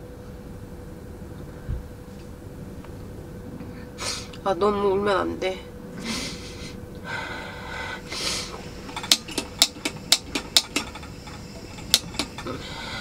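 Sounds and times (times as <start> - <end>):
shaky breathing: 6.0 - 9.2, 10.9 - 13.0
person sniffing: 7.4 - 8.6
gas burner igniter clicks: 8.9 - 12.4.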